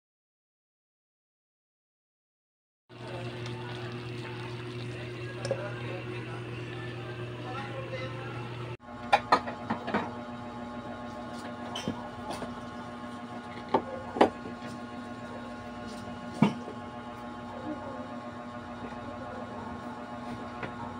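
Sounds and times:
low electrical hum: 0:02.9 - 0:20.9.

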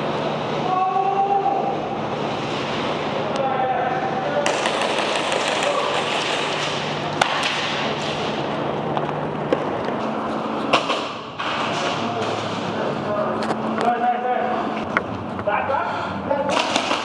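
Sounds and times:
airsoft gunfire cracks: 0:04.4 - 0:06.6.

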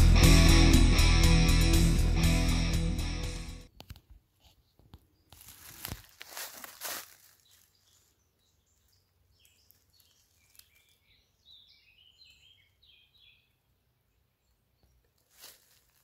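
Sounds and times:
songbird chirping: 0:04.5 - 0:16.0.

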